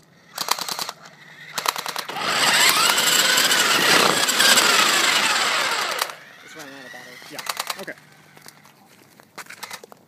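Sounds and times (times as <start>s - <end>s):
tyres on asphalt: 0.0s - 10.0s
toy car electric motor whining: 0.3s - 8.7s
airsoft gun firing rapid clicks: 0.4s - 1.0s, 1.6s - 2.1s, 7.4s - 7.9s.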